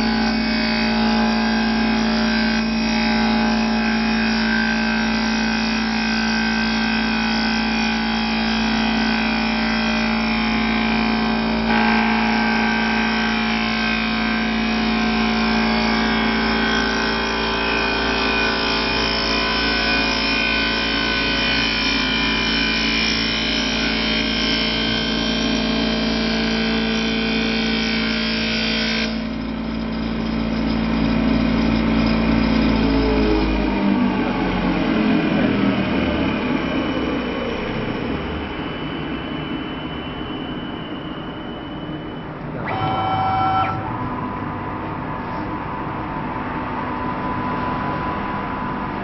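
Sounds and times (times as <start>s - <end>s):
wood lathe cutting wood: 0.0s - 29.4s, 42.6s - 43.8s.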